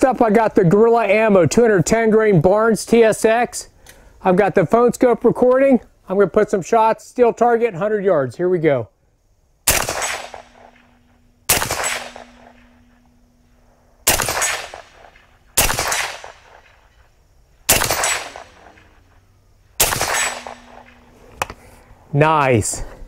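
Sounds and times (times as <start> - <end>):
gunshots with echo: 9.7 - 13.0, 14.0 - 16.8, 17.7 - 19.1, 19.8 - 21.4.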